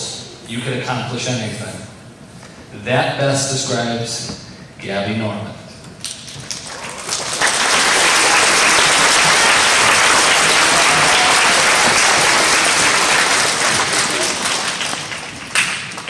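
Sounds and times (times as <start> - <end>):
audience applauding: 6.1 - 16.0.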